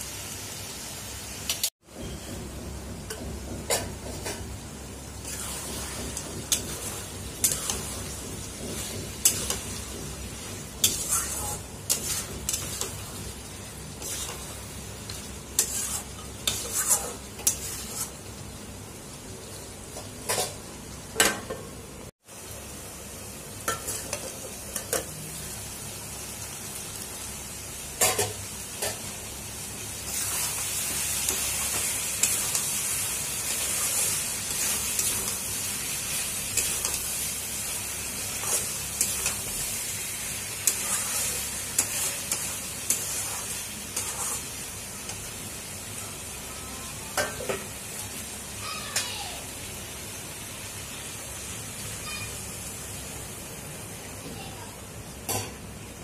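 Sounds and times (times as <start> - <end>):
curry sizzling in a pan: 0.0 - 56.0
metal spatula scraping a pan: 5.2 - 18.3, 30.1 - 37.3, 38.2 - 39.6, 40.5 - 45.2.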